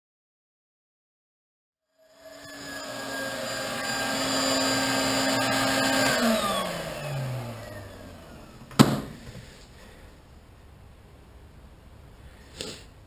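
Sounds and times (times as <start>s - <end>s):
motor winding down whine: 2.0s - 8.7s
vacuum cleaner running: 2.0s - 9.4s.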